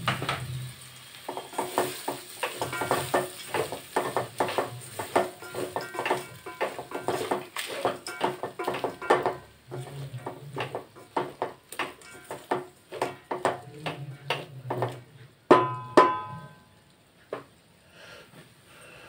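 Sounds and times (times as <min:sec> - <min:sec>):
spoon clanking on pot: 0:01.3 - 0:16.7
spoon scraping metal pot: 0:01.4 - 0:15.1.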